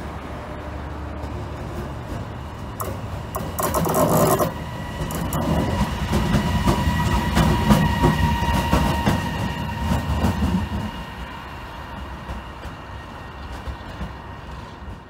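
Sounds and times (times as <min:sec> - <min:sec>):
electric locomotive passing: 0:00.0 - 0:15.0
wheels scraping on rail: 0:02.2 - 0:10.9
steady whine: 0:02.7 - 0:07.2.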